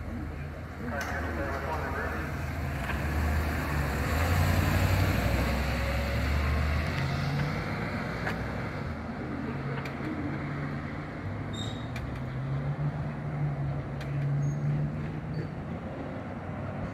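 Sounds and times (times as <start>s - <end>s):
vehicle engine driving past: 2.2s - 9.7s.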